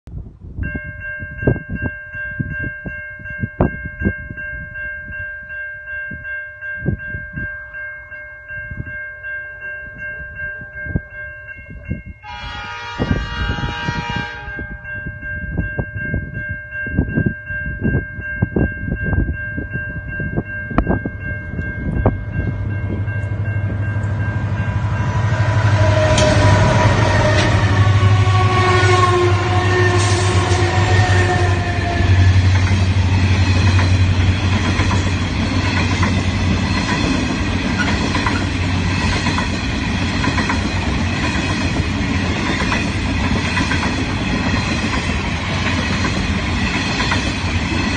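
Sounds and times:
wind buffeting microphone: 0:00.1 - 0:07.8, 0:08.5 - 0:09.0, 0:09.8 - 0:47.9
locomotive horn: 0:12.2 - 0:14.8, 0:23.7 - 0:33.0
high-pitched ringing tone: 0:14.4 - 0:37.2
train wheel noise: 0:17.9 - 0:47.9
locomotive engine drone: 0:20.6 - 0:47.9.

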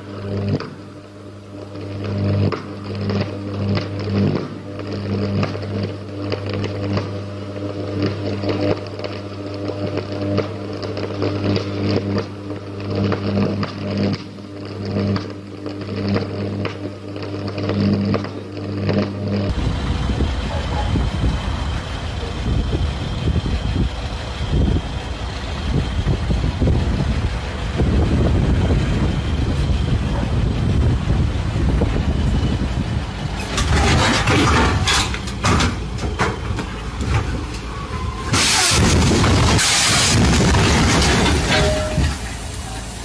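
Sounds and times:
diesel engine rumbling: 0:19.5 - 0:43.0
crashing and clattering: 0:33.4 - 0:37.5, 0:38.3 - 0:42.4.

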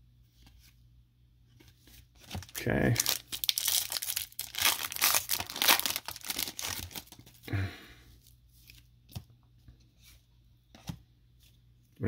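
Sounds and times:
foil wrapper tearing and crinkling: 0:02.3 - 0:07.4.

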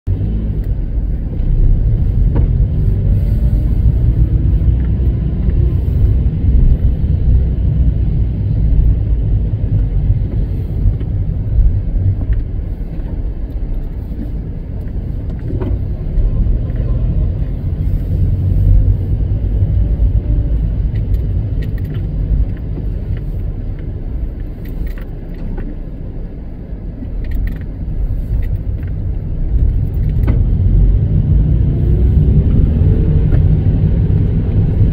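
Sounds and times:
car engine and tyre rumble: 0:00.0 - 0:34.9
light rattles and ticks: 0:18.7 - 0:30.5.

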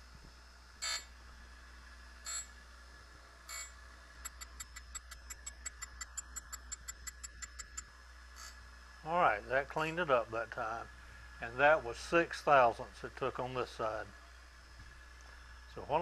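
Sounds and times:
light sharp mechanical clicks: 0:03.5 - 0:08.6.

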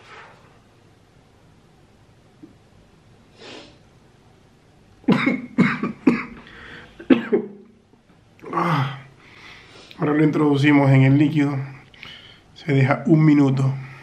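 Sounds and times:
faint sniff: 0:03.3 - 0:03.8, 0:09.2 - 0:10.0
man coughing: 0:05.1 - 0:06.4, 0:07.0 - 0:07.7.

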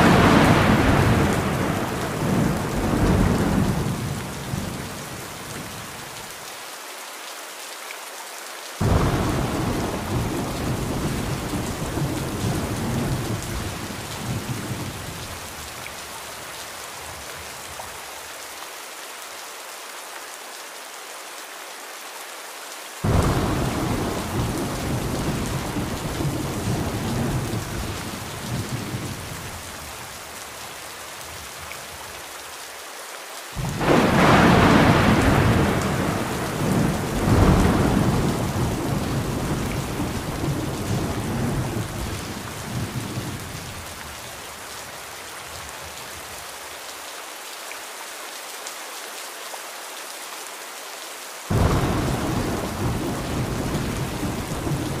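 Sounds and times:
rolling thunder: 0:00.0 - 0:04.7, 0:08.8 - 0:15.1, 0:23.0 - 0:29.3, 0:33.6 - 0:43.6, 0:51.5 - 0:55.0
steady rain: 0:00.0 - 0:55.0.

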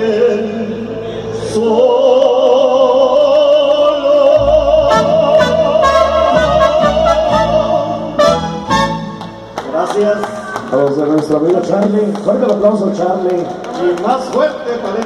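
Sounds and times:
mariachi band playing: 0:04.3 - 0:11.8.

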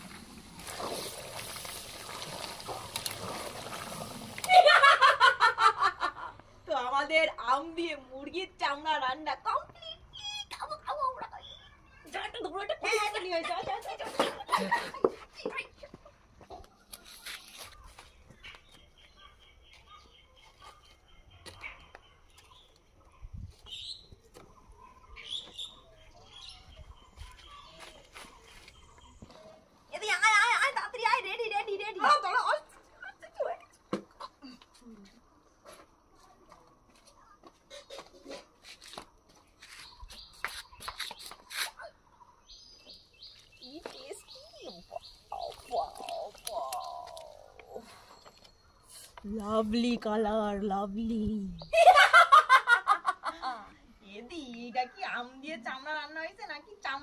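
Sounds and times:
woman laughing: 0:04.5 - 0:06.4, 0:12.9 - 0:15.2, 0:51.7 - 0:53.8
birds chirping: 0:06.3 - 0:57.0.

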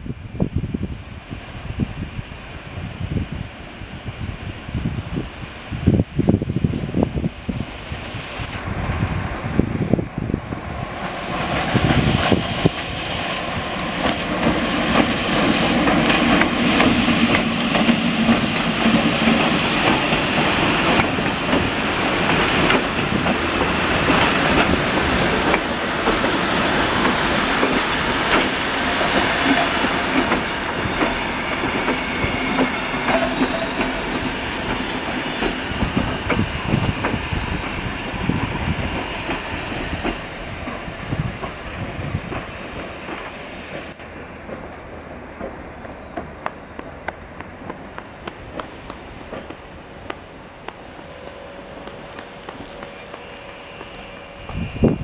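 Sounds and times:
diesel locomotive engine: 0:00.0 - 0:55.0
high wheel squeals: 0:24.7 - 0:27.2, 0:51.0 - 0:55.0.

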